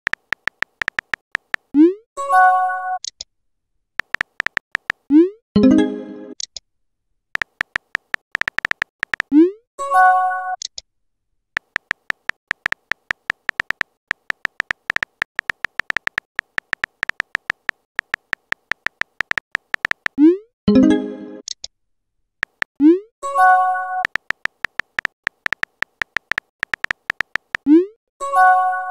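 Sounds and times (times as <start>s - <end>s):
keyboard tap clicks: 0.1s - 1.7s, 4.0s - 5.0s, 7.4s - 9.3s, 11.6s - 20.2s, 22.4s - 22.7s, 24.0s - 27.6s.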